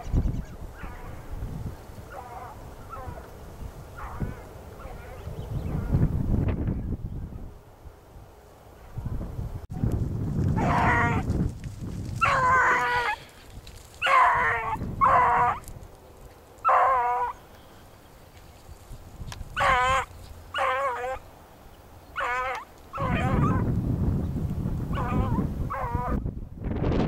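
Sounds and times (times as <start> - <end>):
wind rumble on microphone: 0.0 - 16.8, 18.2 - 21.3, 22.2 - 27.0
hound baying: 2.1 - 3.3, 4.0 - 5.3, 10.6 - 11.2, 12.2 - 13.3, 14.0 - 15.7, 16.6 - 17.4, 19.6 - 21.3, 22.2 - 23.7, 24.9 - 26.2.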